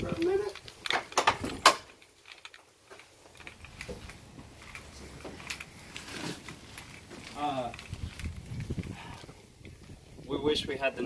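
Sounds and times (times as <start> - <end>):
wooden gate clacking open: 0.0 - 2.0
faint footsteps: 0.0 - 10.3.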